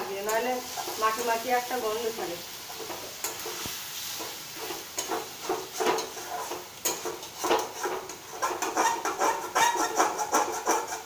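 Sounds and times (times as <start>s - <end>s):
low sizzle from pan: 0.0s - 11.0s
metal spoon scraping steel pan: 4.6s - 11.0s.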